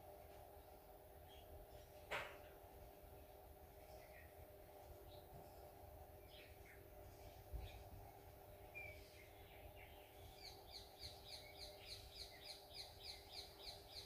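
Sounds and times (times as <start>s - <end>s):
steady hum: 0.0s - 14.0s
bird chirping: 6.2s - 14.0s.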